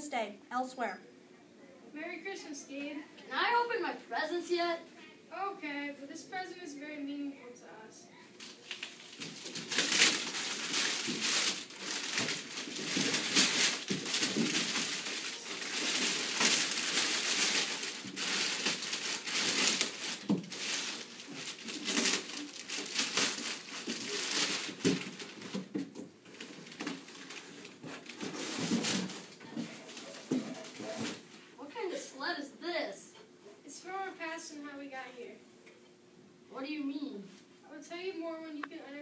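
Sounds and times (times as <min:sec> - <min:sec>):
wrapping paper tearing and crumpling: 0:08.4 - 0:31.3.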